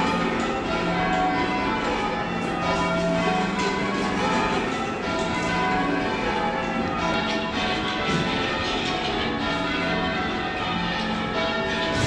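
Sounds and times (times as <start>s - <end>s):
church bells change ringing: 0.0s - 12.0s.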